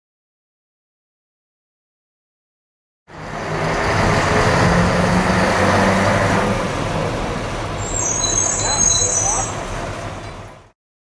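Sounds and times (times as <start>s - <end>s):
diesel truck engine running: 3.1s - 8.7s.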